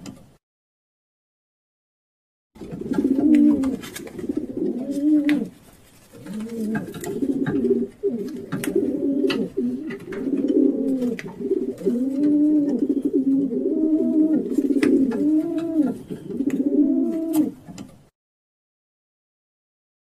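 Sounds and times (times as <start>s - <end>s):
pigeon cooing: 2.6s - 17.8s.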